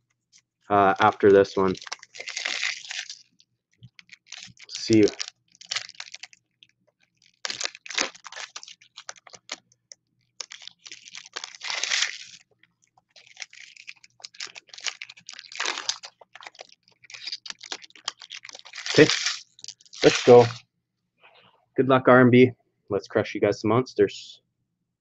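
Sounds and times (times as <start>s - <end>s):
foil wrappers crinkling and tearing: 0.8s - 20.6s.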